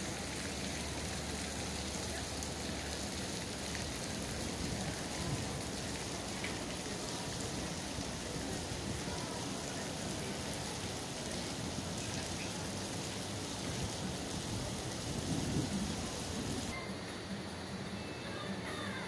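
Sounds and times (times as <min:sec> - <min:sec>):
wind buffeting microphone: 0:14.6 - 0:16.7.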